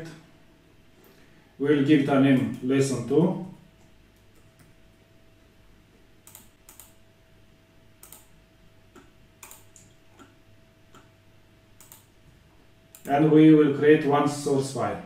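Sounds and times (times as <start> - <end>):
faint steady hum: 0.0 - 15.0
keyboard and mouse clicks: 3.8 - 4.8, 6.2 - 7.0, 8.0 - 11.1, 11.8 - 12.2, 12.9 - 13.2.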